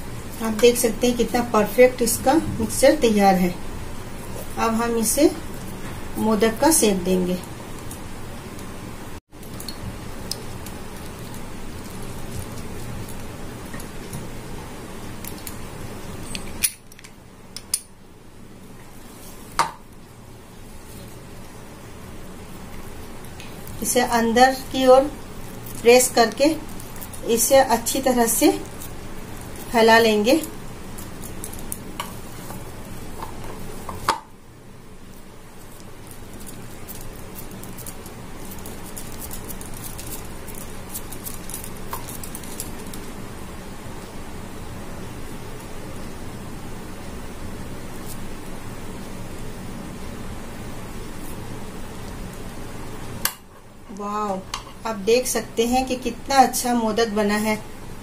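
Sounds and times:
low steady background noise: 0:00.0 - 0:58.0
steady low hum: 0:00.0 - 0:58.0
hands shaping sticky mixture: 0:09.4 - 0:17.8, 0:18.8 - 0:34.1, 0:35.0 - 0:44.3.

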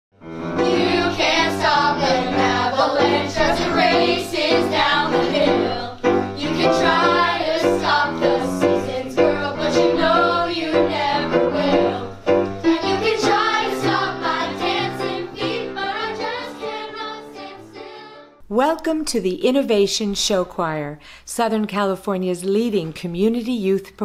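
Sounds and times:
piano accompaniment: 0:00.2 - 0:18.5
children's choir singing: 0:00.4 - 0:18.4.

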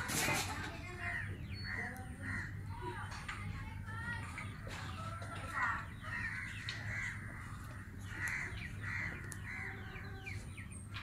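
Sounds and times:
small birds chirping: 0:00.0 - 0:11.0
crow cawing: 0:01.7 - 0:02.6, 0:05.6 - 0:10.0.

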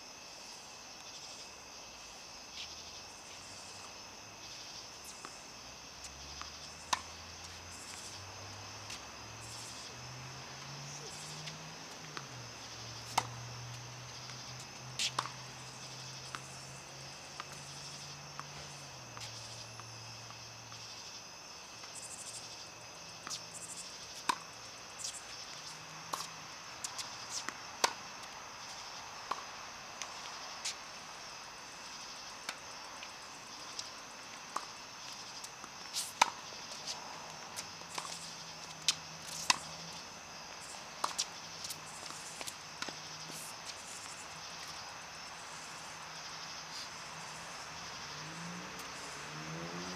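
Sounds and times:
insects chirring: 0:00.0 - 0:49.9
tennis balls struck and bouncing: 0:03.9 - 0:10.4, 0:11.0 - 0:21.0, 0:21.7 - 0:30.8, 0:32.1 - 0:44.8.

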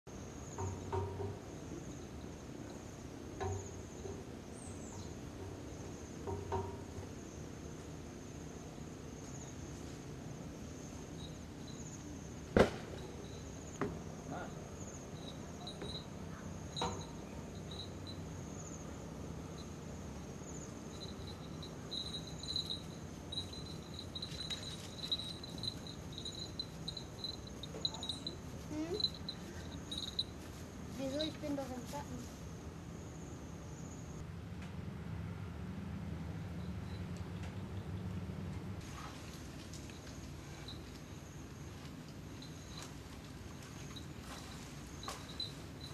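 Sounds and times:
insects trilling: 0:00.1 - 0:34.2, 0:39.7 - 0:45.9
sharp knocks: 0:00.6 - 0:01.5.

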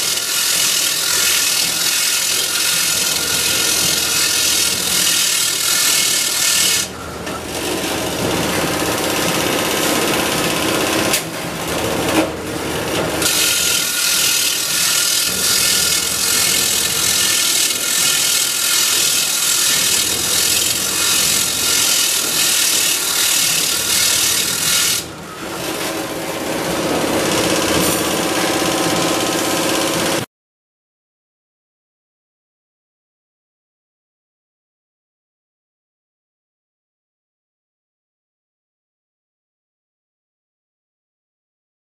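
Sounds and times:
bench grinder grinding steel rods: 0:00.0 - 0:30.3.

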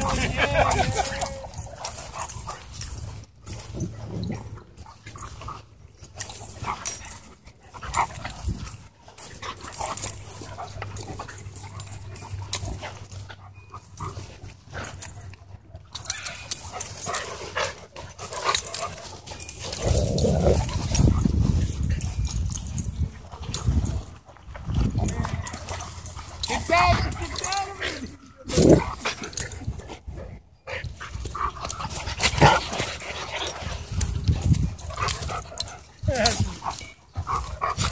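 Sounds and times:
dogs scuffling: 0:00.0 - 0:30.1.

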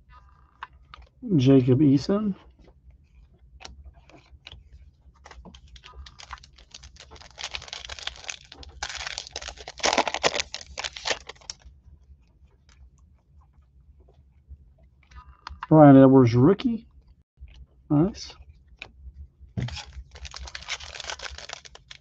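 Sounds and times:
foil wrapper crinkling: 0:05.6 - 0:11.7, 0:19.6 - 0:22.0.

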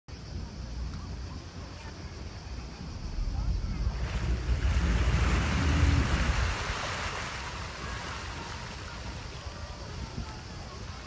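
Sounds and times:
wind rumbling on microphone: 0:00.1 - 0:11.0
sea waves washing: 0:02.6 - 0:11.0.

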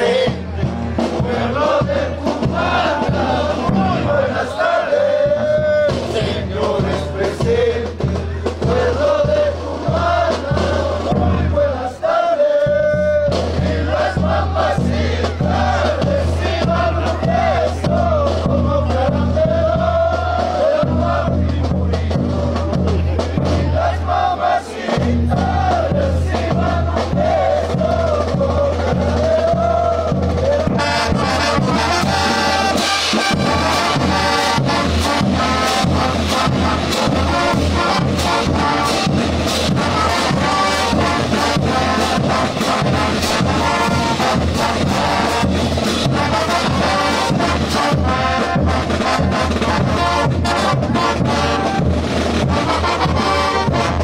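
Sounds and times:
people shouting: 0:00.0 - 0:05.5, 0:50.8 - 0:52.0
bass drums and cymbals march beat: 0:00.0 - 0:54.0
brass section playing: 0:00.0 - 0:54.0.

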